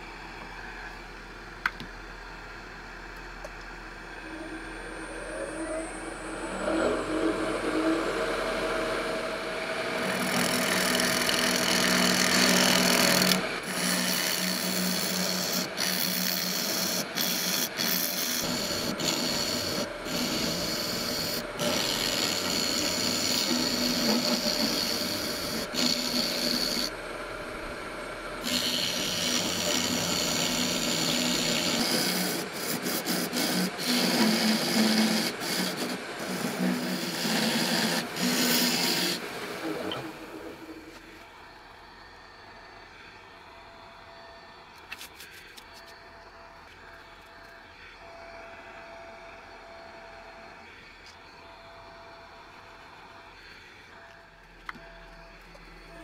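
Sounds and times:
lathe hum: 0.0s - 56.0s
gouge cutting on a lathe: 5.3s - 41.1s.

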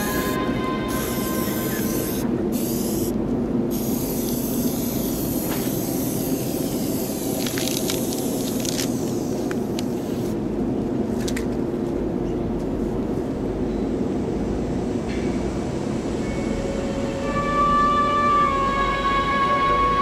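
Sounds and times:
spray-paint can hissing: 0.0s - 10.4s
steady low rumble: 0.0s - 16.2s.

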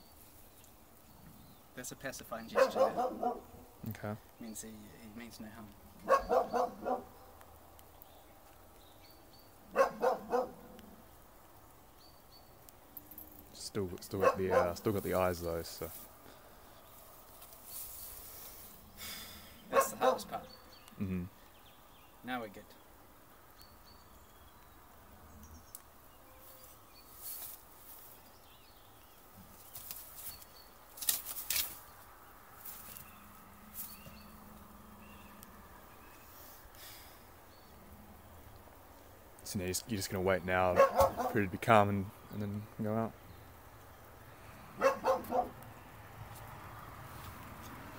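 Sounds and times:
small birds chirping: 0.0s - 47.9s
dog barking: 2.5s - 3.6s, 6.0s - 7.2s, 9.7s - 10.8s, 14.2s - 14.8s, 19.7s - 20.5s, 40.7s - 41.4s, 44.8s - 45.6s
rustling and scuffing: 14.8s - 16.2s, 16.9s - 18.8s, 26.4s - 28.4s, 29.4s - 34.3s, 47.1s - 47.8s.

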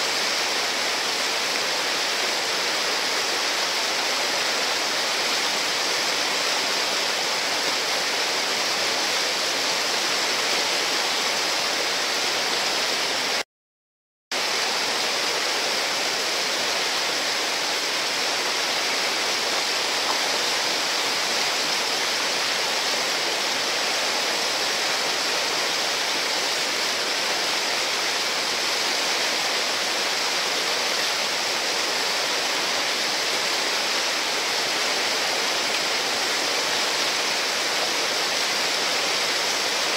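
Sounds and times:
whitewater rapids rushing: 0.0s - 13.4s, 14.4s - 39.9s.

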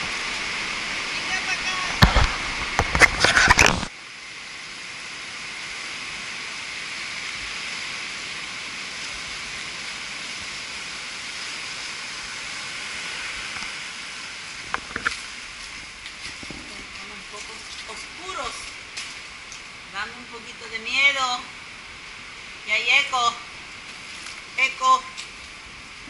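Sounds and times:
surf washing on beach: 0.0s - 26.0s
wind buffeting microphone: 14.5s - 17.6s.

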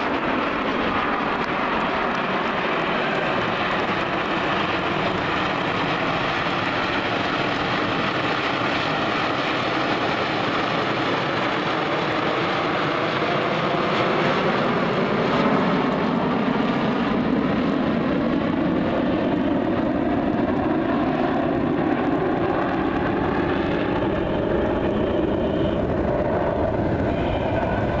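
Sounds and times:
jet engines rushing overhead: 0.0s - 28.0s.

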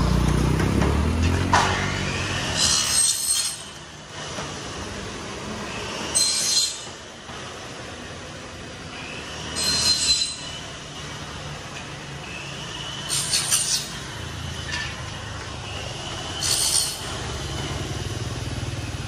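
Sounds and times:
motorbike engine: 0.0s - 19.0s
road traffic rumble: 0.0s - 19.0s
high metallic squeal: 1.6s - 3.8s, 5.6s - 7.0s, 8.9s - 11.0s, 12.1s - 17.9s.

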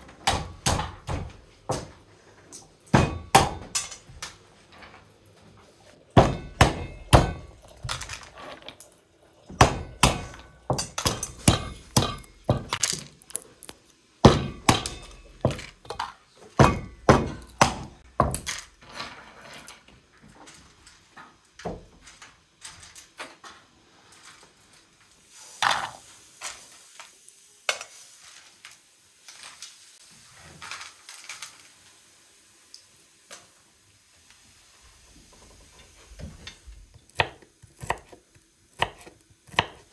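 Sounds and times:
hammer cracking nutshells: 10.0s - 16.0s.

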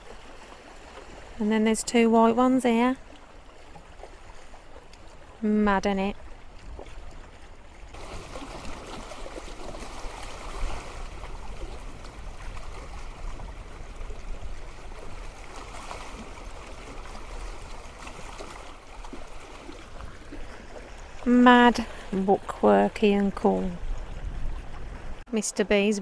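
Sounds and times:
water lapping against stone: 0.0s - 25.3s
wind rumbling on microphone: 6.0s - 25.3s.

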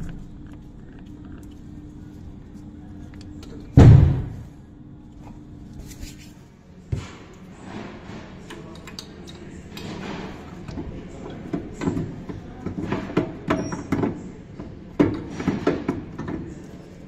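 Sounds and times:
heavy metal housing thud: 3.8s - 4.5s.

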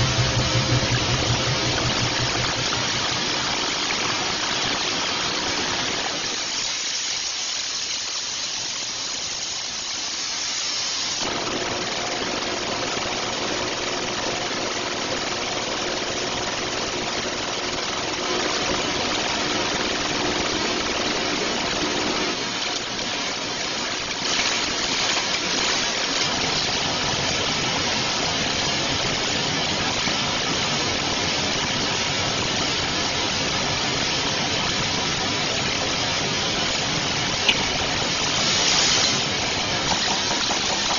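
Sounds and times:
machinery rushing and hissing: 0.0s - 5.5s, 36.6s - 40.9s.

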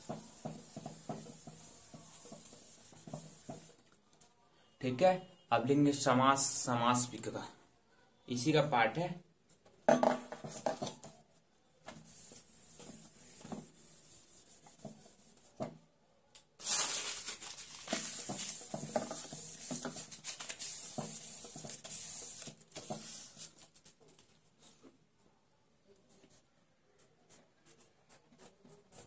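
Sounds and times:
hand rubbing a whiteboard: 0.0s - 3.8s, 11.9s - 15.6s, 17.7s - 24.0s.

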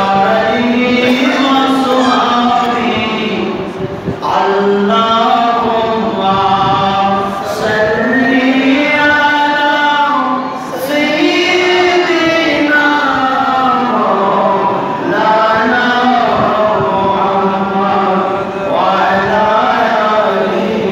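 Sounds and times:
man chanting into a microphone: 0.0s - 20.9s.

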